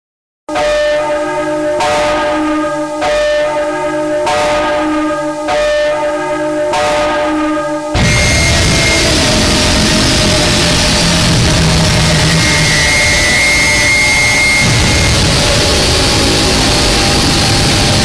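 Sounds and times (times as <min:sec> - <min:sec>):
deep bell tolling: 0:06.0 - 0:18.0
harsh noise music: 0:08.0 - 0:18.0.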